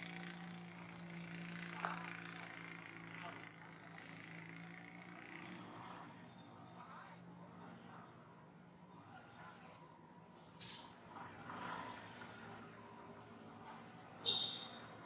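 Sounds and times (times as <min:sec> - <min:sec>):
faint outdoor ambience: 0:00.0 - 0:15.0
bird chirping: 0:14.3 - 0:15.0.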